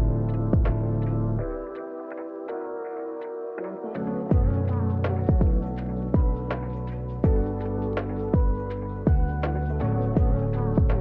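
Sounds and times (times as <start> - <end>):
deep kick drum beats: 0.0 - 1.0, 4.3 - 6.6, 7.2 - 7.6, 8.2 - 9.5, 10.2 - 11.0
mellow electronic music: 0.0 - 11.0.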